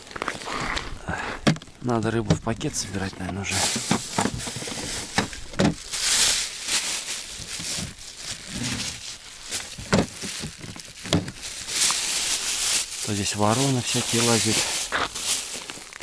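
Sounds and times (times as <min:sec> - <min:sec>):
plastic bag rustling: 0:01.8 - 0:16.0.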